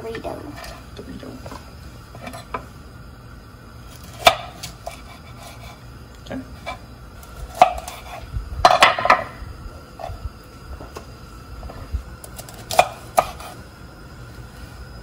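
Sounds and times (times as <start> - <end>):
knife cutting on wooden board: 12.6 - 13.6.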